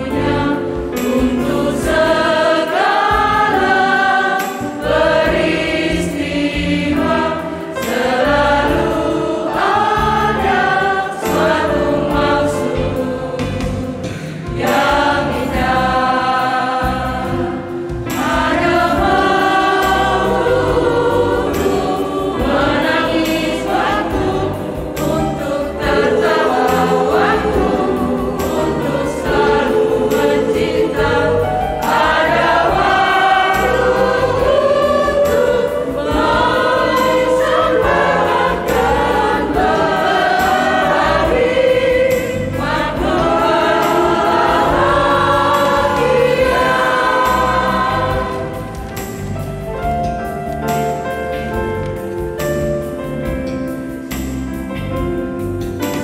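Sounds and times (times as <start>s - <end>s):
women's choir singing a hymn: 0.0s - 56.0s.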